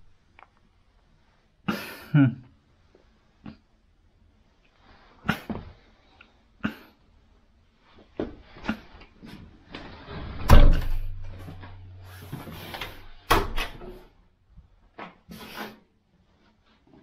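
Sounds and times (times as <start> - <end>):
heavy door thump: 10.3 - 14.0
door knocks and latch clicks: 10.5 - 11.2, 13.3 - 13.8.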